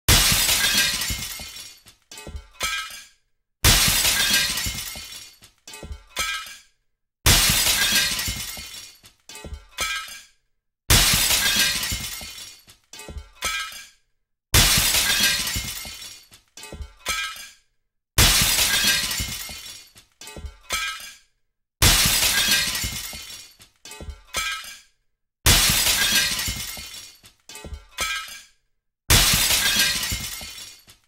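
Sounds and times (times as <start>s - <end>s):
window pane shattering: 0.1s - 3.0s, 3.6s - 5.6s, 7.3s - 9.2s, 10.9s - 12.8s, 14.6s - 16.2s, 18.2s - 20.0s, 21.8s - 23.7s, 25.5s - 27.4s, 29.1s - 31.0s
glass fragments falling and tinkling: 0.1s - 3.1s, 3.7s - 6.6s, 7.3s - 9.2s, 11.0s - 12.8s, 14.6s - 16.4s, 18.2s - 20.1s, 21.9s - 23.7s, 25.5s - 27.4s, 29.1s - 31.0s.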